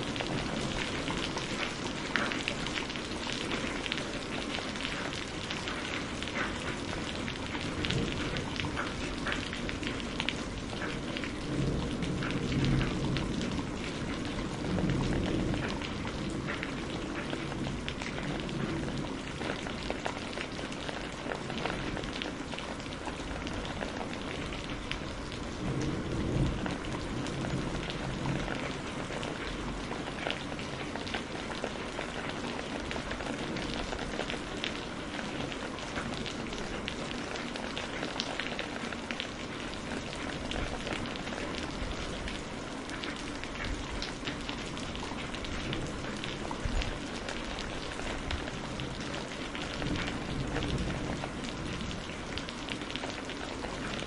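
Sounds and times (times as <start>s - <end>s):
heavy rain: 0.0s - 54.0s
distant thunder rolls: 23.6s - 29.8s.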